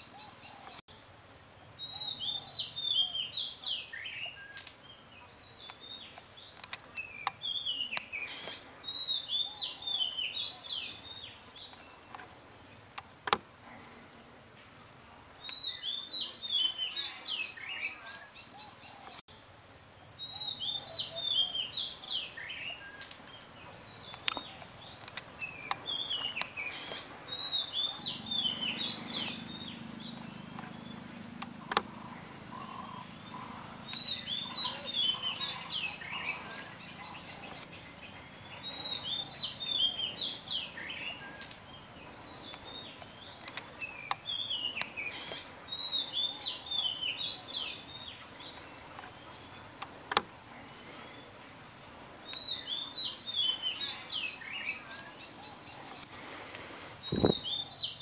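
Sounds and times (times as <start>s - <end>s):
songbird chirping: 0.0s - 58.0s
sharp clicks: 24.1s - 27.0s, 28.0s - 31.9s, 49.8s - 50.4s.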